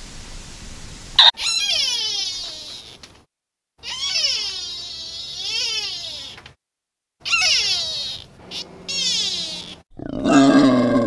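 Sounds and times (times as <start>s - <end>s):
deer calling: 1.2s - 3.1s, 3.8s - 6.4s, 7.2s - 9.8s.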